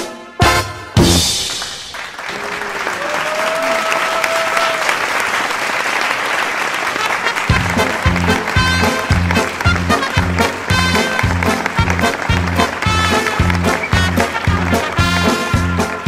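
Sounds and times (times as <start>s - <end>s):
audience applauding: 1.4s - 16.0s
audience cheering: 1.5s - 16.0s
paso doble music: 7.0s - 16.0s.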